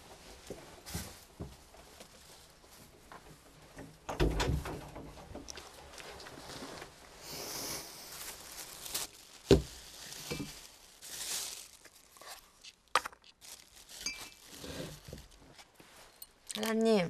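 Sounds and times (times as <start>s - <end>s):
clothing rustling: 5.4s - 12.8s, 13.4s - 16.5s.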